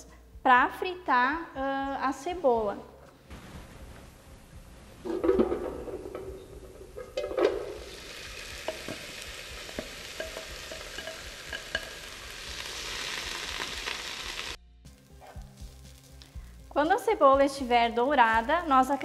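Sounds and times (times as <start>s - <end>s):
onion sizzling in frying pan: 3.3s - 19.0s
spatula scraping and tapping pan: 5.1s - 13.9s.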